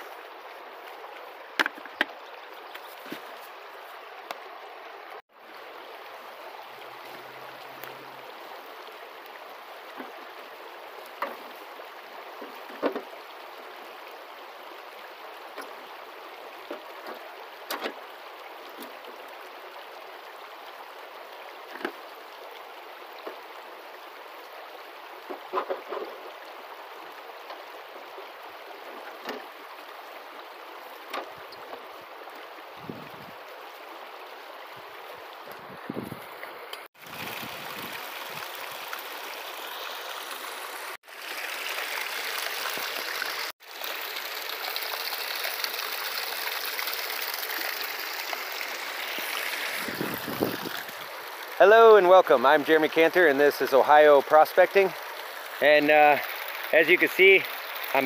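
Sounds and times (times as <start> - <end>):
creek water rushing: 0.0 - 58.0.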